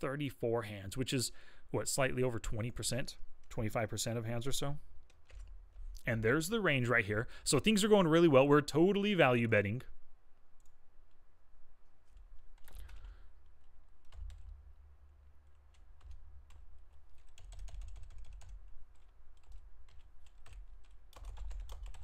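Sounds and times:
typing on keyboard: 0:05.0 - 0:06.0, 0:12.1 - 0:14.7, 0:15.4 - 0:22.0.

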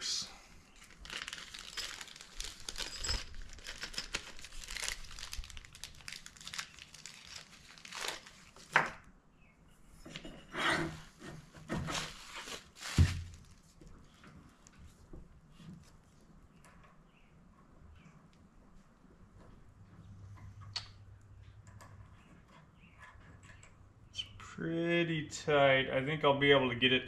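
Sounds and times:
plastic bag crinkling and tearing: 0:00.8 - 0:08.8, 0:11.9 - 0:13.6.

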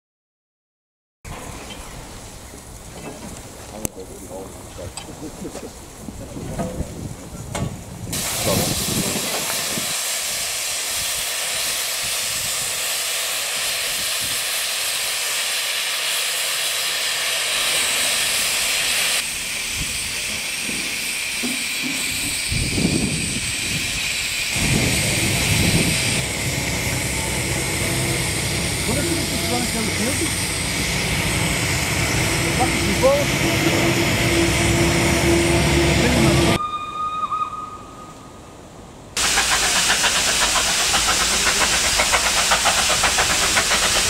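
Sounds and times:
steam hissing: 0:08.0 - 0:36.6, 0:39.2 - 0:44.0
low rumbles: 0:24.6 - 0:36.6.

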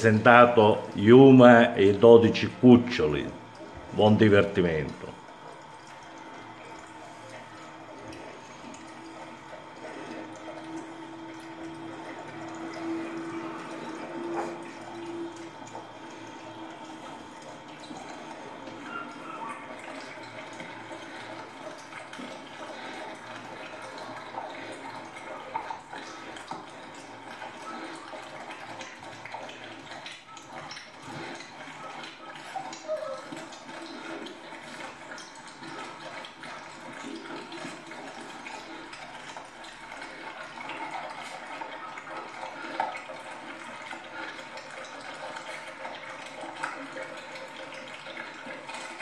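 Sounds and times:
puppies lapping liquid: 0:00.0 - 0:49.0.

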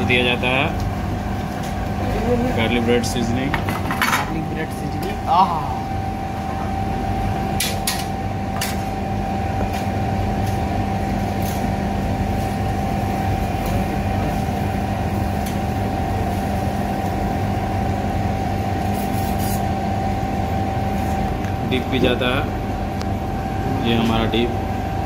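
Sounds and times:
machine hum: 0:00.0 - 0:25.0.

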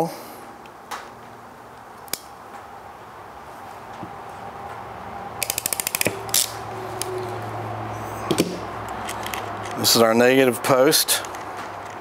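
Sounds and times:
crimping tool clicking: 0:05.4 - 0:07.1.

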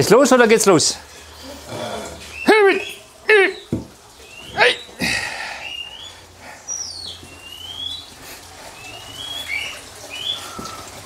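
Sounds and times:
birds whistling: 0:02.2 - 0:10.9.

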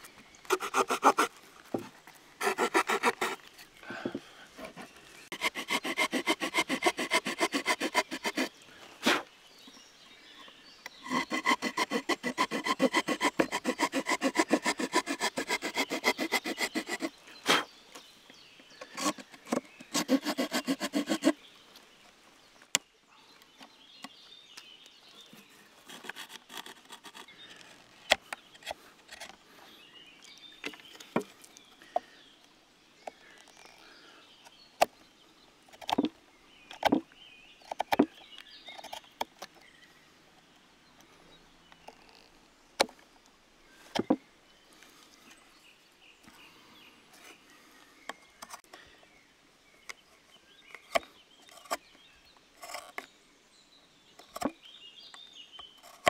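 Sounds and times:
pocketknife saw sawing wood: 0:00.5 - 0:01.4, 0:02.4 - 0:03.5, 0:04.6 - 0:09.3, 0:11.0 - 0:17.7, 0:18.9 - 0:21.4, 0:25.8 - 0:27.9
knife clicking and scraping wood: 0:02.4 - 0:03.5, 0:25.9 - 0:29.4, 0:52.6 - 0:53.0.

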